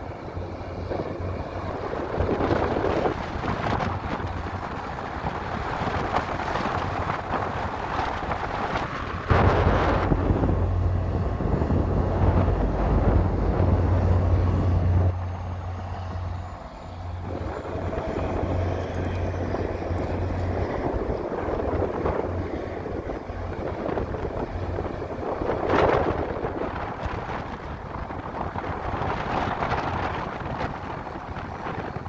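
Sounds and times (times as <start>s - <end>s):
diesel locomotive droning: 0.0s - 32.0s.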